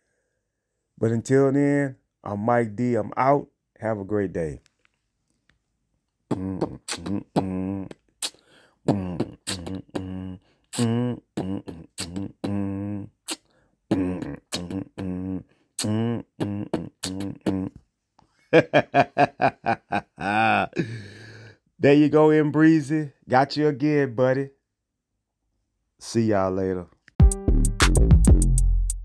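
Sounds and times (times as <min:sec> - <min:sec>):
man beatboxing and scatting: 0:06.3 - 0:17.8.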